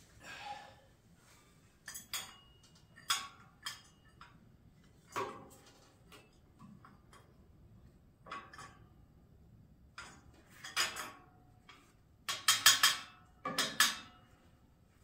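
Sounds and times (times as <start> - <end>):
metallic clicks and knocks: 9.9 - 14.3.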